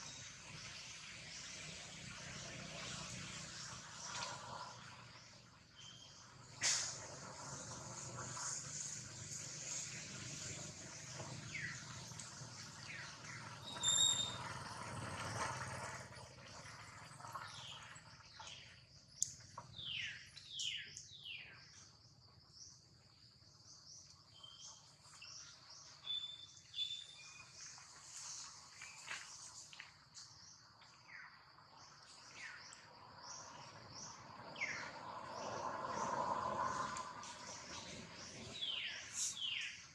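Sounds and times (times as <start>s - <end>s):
constant high-pitched buzz: 0.0s - 39.9s
birds chirping: 37.2s - 39.9s.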